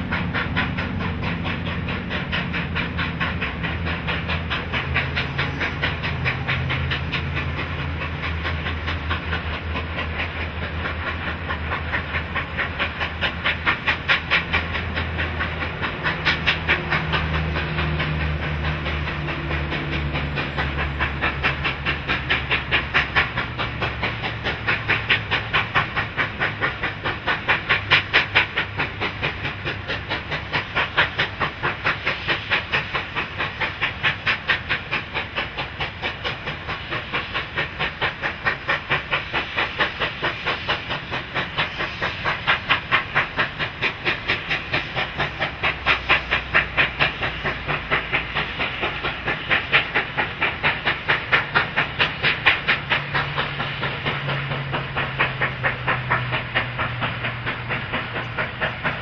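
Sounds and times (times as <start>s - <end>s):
hiss of steam: 0.0s - 59.0s
steam locomotive exhaust beating: 0.0s - 59.0s.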